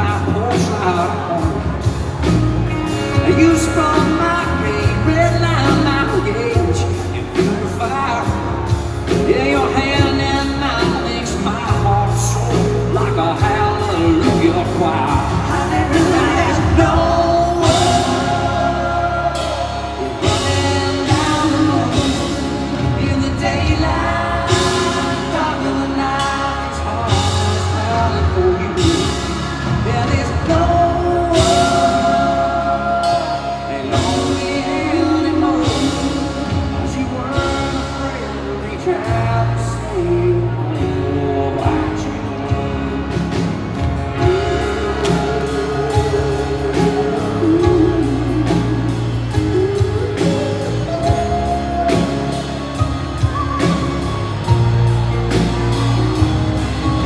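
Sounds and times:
drums: 0.0 - 57.0
man singing lead: 0.0 - 57.0.

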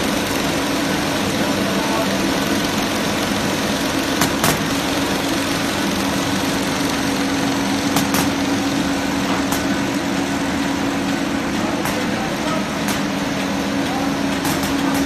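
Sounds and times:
machine hum: 0.0 - 15.0
sharp machine clicks: 2.4 - 8.4, 11.8 - 15.0.

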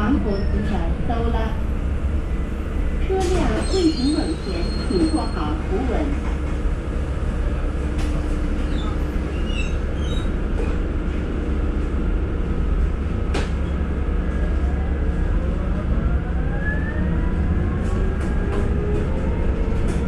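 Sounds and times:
bus interior rumble: 0.0 - 20.0
rising whine: 14.8 - 19.7.

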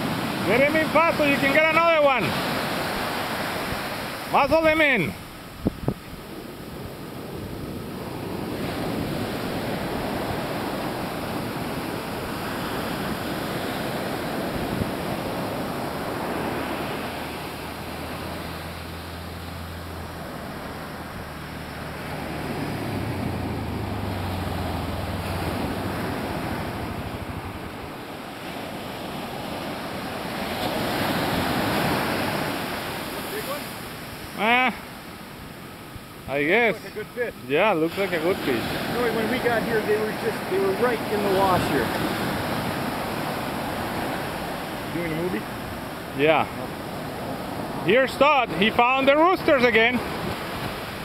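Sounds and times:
surf breaking on beach: 0.0 - 51.0
wind on microphone: 5.2 - 19.0, 20.0 - 33.0.

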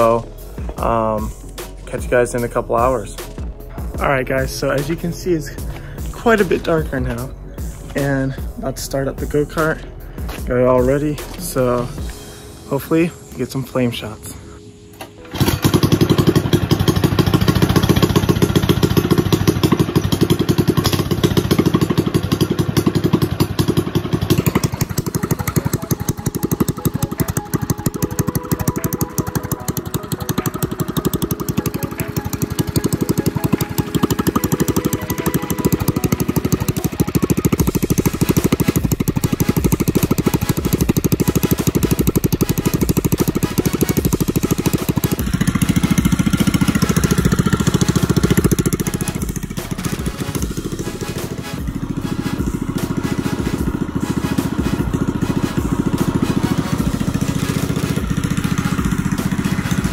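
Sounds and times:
small engine running fast: 15.3 - 59.9.

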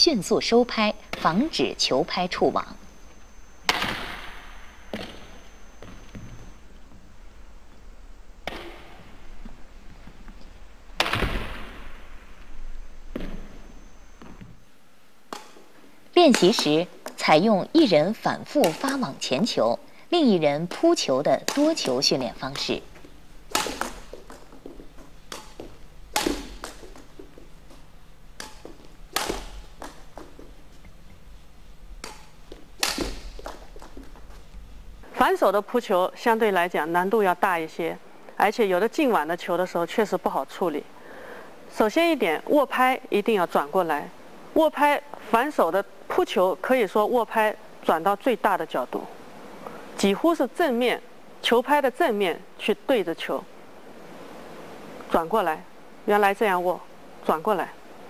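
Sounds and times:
racket striking shuttlecock: 3.6 - 6.3, 8.4 - 9.0, 11.0 - 12.0, 15.3 - 15.7, 16.3 - 17.2, 18.6 - 19.2, 20.7 - 22.7, 23.5 - 31.0, 32.0 - 34.4.

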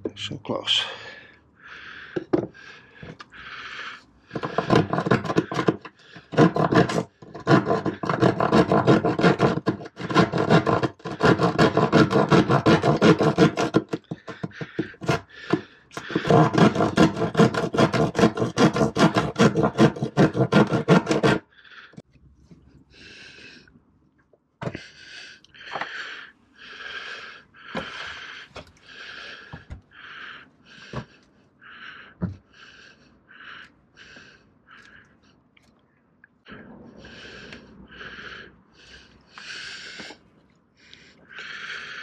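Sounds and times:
hand saw rasping through fibreglass: 4.3 - 21.5.

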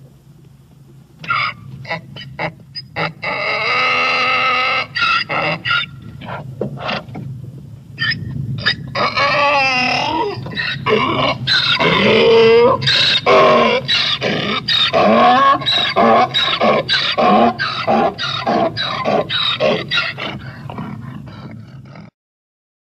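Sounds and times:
donkey braying: 1.2 - 7.2, 8.0 - 22.1.

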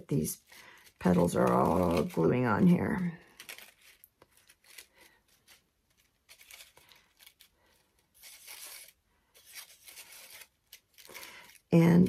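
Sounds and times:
paper rustling and crinkling: 0.1 - 12.0.

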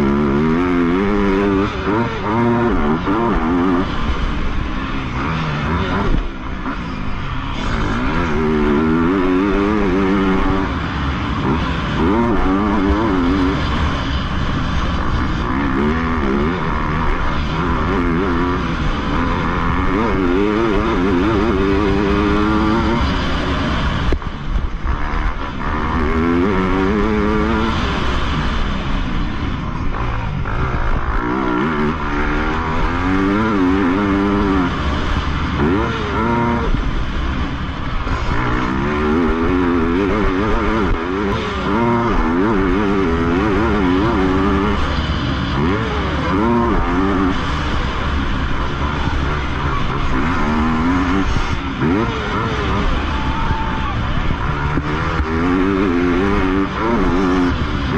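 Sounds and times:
motorbike engine revving: 0.0 - 57.9.

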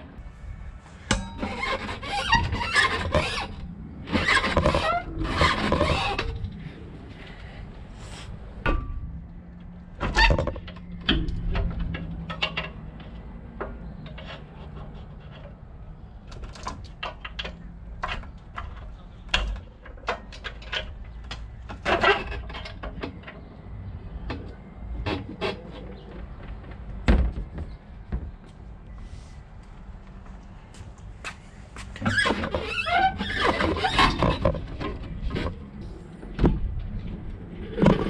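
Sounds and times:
low steady hum: 0.0 - 20.1
knocks and clanks: 8.6 - 15.6, 24.2 - 28.6.

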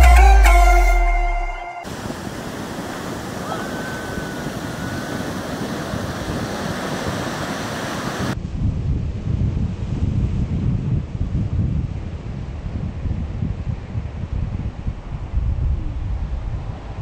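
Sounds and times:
surf breaking on beach: 1.8 - 8.4
wind buffeting microphone: 1.9 - 17.0.

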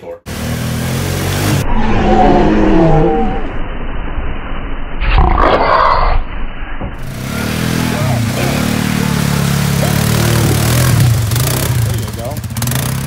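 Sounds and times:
quad bike engine revving: 0.3 - 1.6, 7.0 - 13.0
loud rough burst of noise: 0.9 - 13.0.

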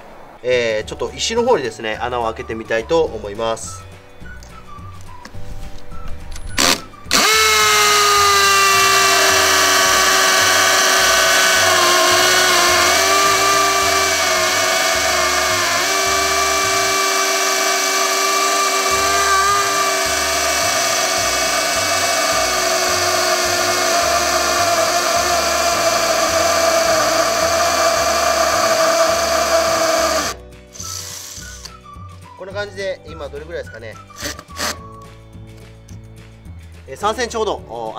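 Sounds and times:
hammer drill boring into stone: 6.6 - 31.8, 34.2 - 34.9.

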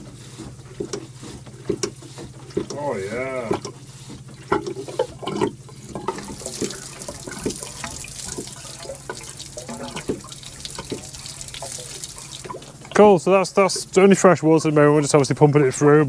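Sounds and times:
water rushing and gurgling: 2.7 - 15.3.

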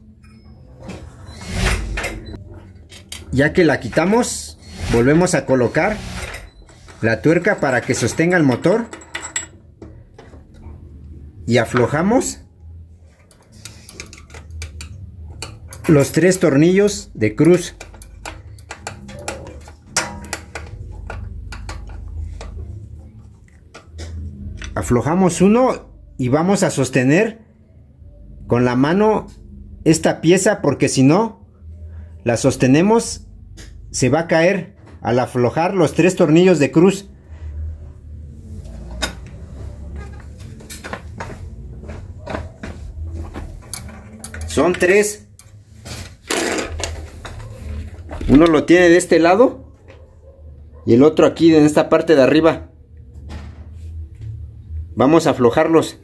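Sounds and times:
metal parts clicking and knocking: 6.0 - 10.6, 13.2 - 16.4, 17.4 - 22.6.

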